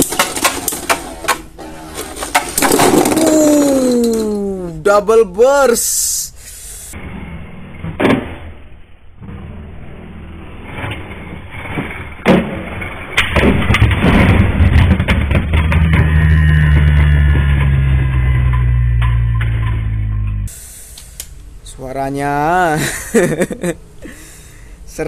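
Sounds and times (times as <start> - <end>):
deep steady drone: 15.6 - 20.9.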